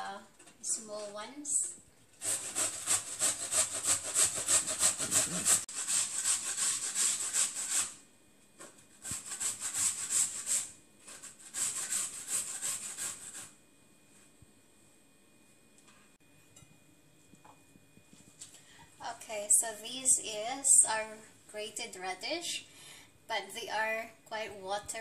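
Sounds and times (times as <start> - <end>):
radish grating on metal grater: 2.2 - 8.0, 9.0 - 13.5.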